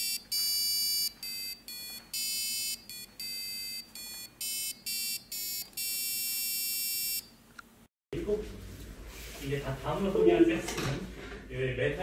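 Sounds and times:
piezo buzzer beeping a tune: 0:00.0 - 0:07.3.

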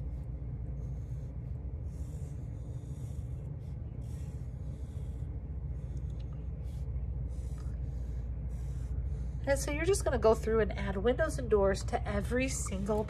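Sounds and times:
pencil scratching on paper: 0:00.0 - 0:10.4
low background hum: 0:00.0 - 0:13.0.

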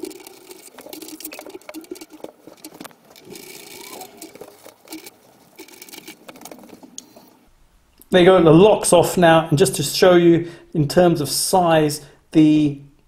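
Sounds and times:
small metallic clicks and rattles: 0:00.0 - 0:07.4.

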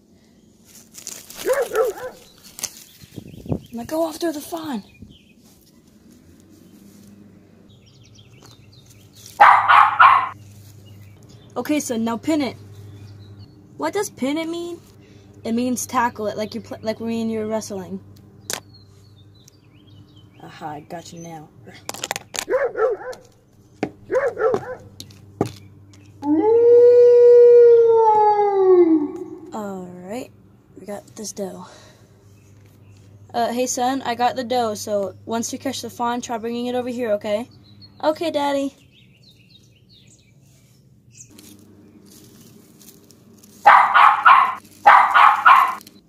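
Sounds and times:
dog barking: 0:01.4 - 0:02.3, 0:09.4 - 0:10.4, 0:22.5 - 0:23.3, 0:24.1 - 0:24.9, 0:43.6 - 0:45.8
rising and falling yelps: 0:09.4 - 0:10.4, 0:26.2 - 0:29.6, 0:43.7 - 0:45.8
wolf-style howl: 0:26.2 - 0:29.6.

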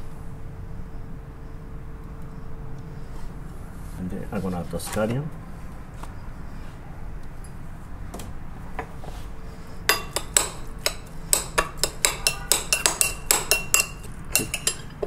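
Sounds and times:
metal spoon clinking on ceramic bowl: 0:09.9 - 0:15.0.

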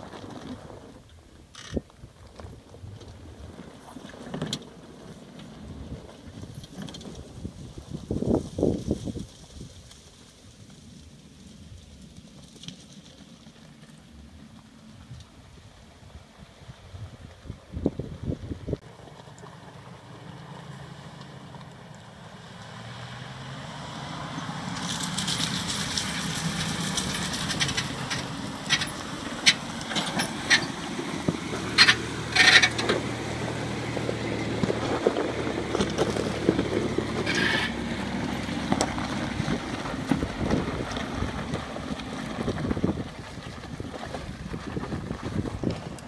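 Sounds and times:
rocks cracking under wheels: 0:00.0 - 0:46.0
van engine under load: 0:00.0 - 0:46.0
tyres crunching over stones: 0:24.3 - 0:46.0.

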